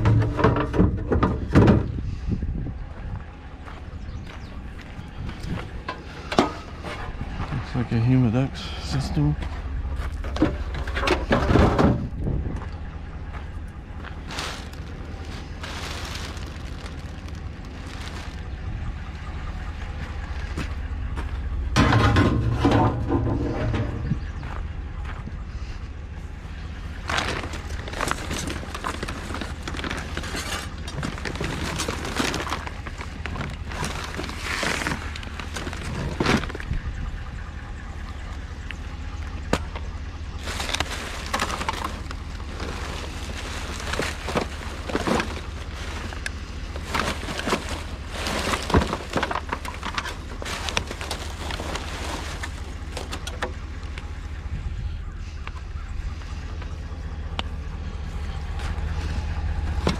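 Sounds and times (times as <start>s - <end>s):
vehicle engine rumble: 0.0s - 59.9s
clattering and sharp knocks: 21.7s - 24.3s.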